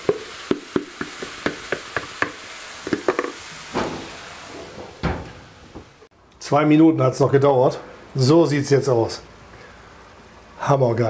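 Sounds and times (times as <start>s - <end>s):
meat sizzling on hot iron: 0.0s - 4.8s.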